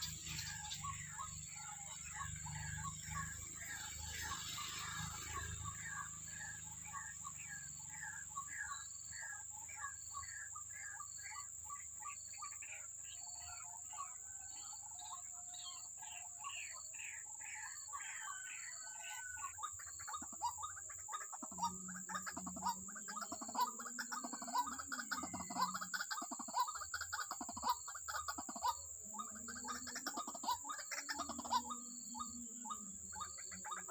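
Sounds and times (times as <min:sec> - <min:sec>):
high insect drone: 0:00.0 - 0:33.9.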